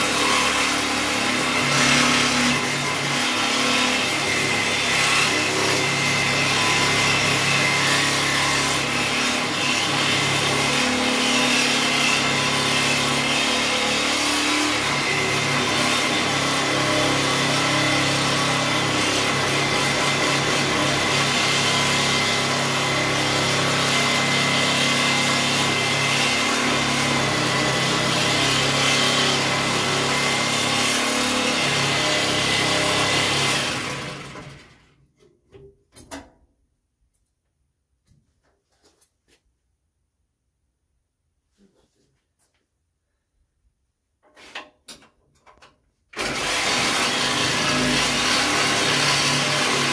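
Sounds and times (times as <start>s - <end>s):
power tool grinding steel: 0.0s - 34.8s, 46.2s - 49.9s.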